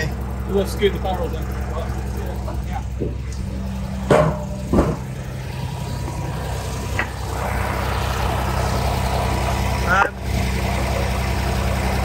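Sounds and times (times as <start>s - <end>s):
large engine idling: 0.0s - 12.0s
sharp knocks: 4.0s - 5.2s.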